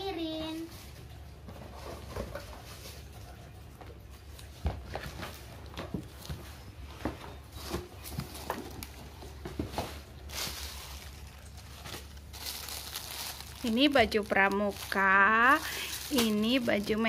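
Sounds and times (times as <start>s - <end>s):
paper rustling: 7.3s - 17.0s.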